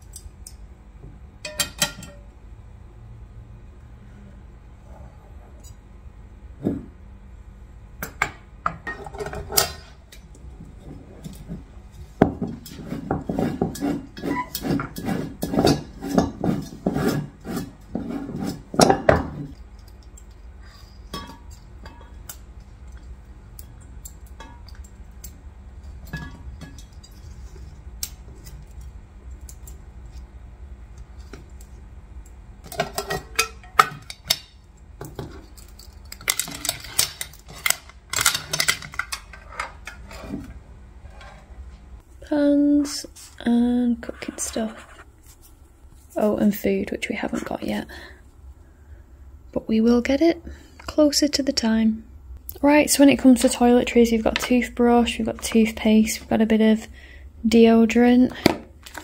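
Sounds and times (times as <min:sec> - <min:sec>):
metal pan and stove clattering: 0:01.4 - 0:02.2, 0:21.1 - 0:22.2, 0:32.7 - 0:34.6.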